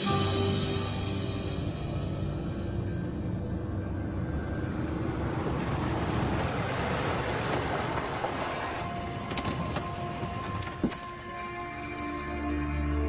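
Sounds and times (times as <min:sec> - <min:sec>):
held musical tones: 0:00.0 - 0:13.0
car driving interior noise: 0:02.4 - 0:12.1.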